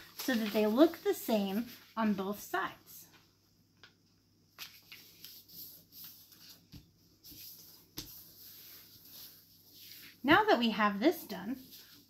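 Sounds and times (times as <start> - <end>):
paper rustling: 0.0 - 2.3, 4.6 - 10.6, 11.5 - 12.0.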